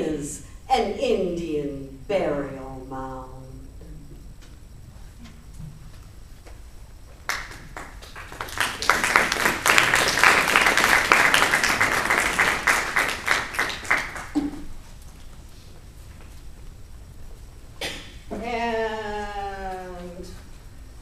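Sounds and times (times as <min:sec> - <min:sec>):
audience applauding: 0:07.2 - 0:14.7.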